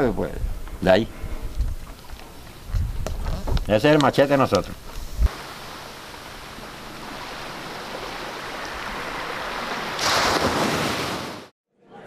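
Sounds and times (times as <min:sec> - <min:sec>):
sea surf washing: 0:03.7 - 0:11.5.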